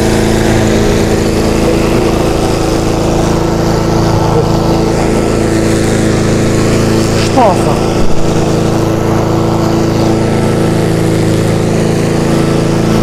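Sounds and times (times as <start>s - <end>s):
lawn mower running: 0.0s - 13.0s.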